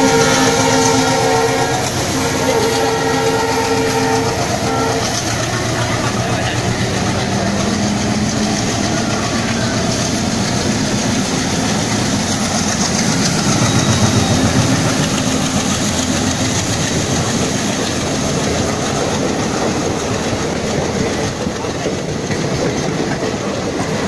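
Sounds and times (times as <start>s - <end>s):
diesel locomotive engine passing: 0.0s - 24.0s
train coaches clattering on rails: 0.0s - 24.0s.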